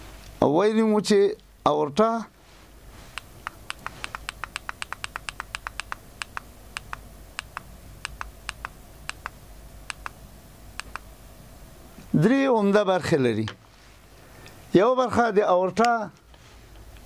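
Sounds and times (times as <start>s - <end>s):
remote button clicking: 3.1s - 10.2s, 10.8s - 11.1s.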